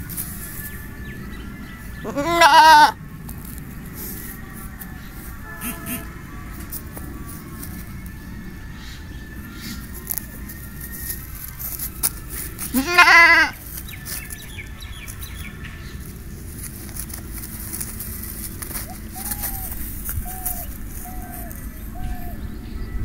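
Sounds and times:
goat bleating: 2.0 - 3.0, 5.4 - 6.3, 12.6 - 13.6.

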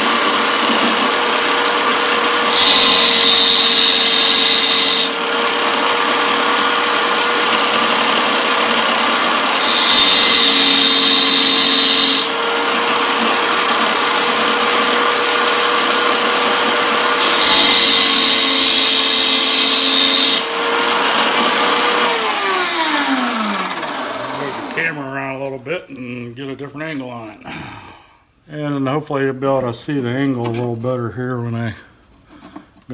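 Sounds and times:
tile cutter wheel whining: 0.0 - 25.0
saw blade teeth grinding: 2.4 - 5.2, 6.6 - 24.8.

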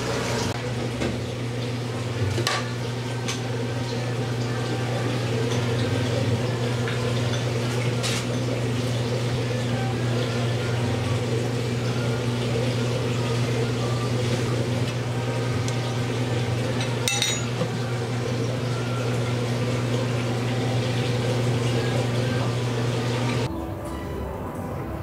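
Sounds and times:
kitchen equipment humming: 0.0 - 25.0
dishware clinking: 16.8 - 17.7.

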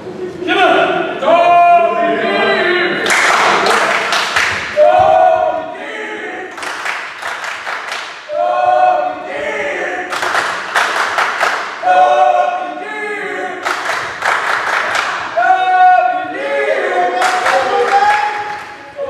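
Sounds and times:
spectators chanting: 1.2 - 7.1, 8.2 - 19.0
crowd clapping and cheering: 3.0 - 5.5, 6.5 - 8.3, 10.1 - 12.4, 13.6 - 15.4, 16.9 - 19.0.

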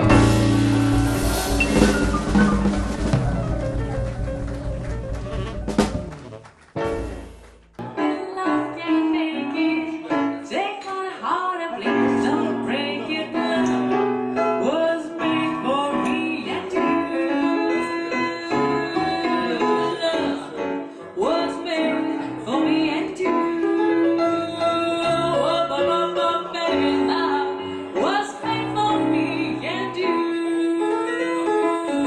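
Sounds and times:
piano accompaniment: 0.0 - 32.0
woman singing into a microphone: 8.0 - 32.0.

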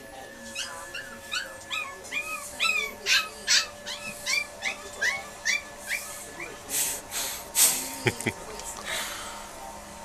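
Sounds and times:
puppy whimpering: 0.5 - 6.6.

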